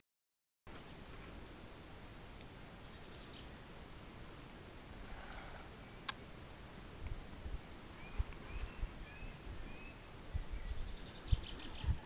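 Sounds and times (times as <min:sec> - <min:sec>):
bird whistling notes: 0:08.0 - 0:12.0.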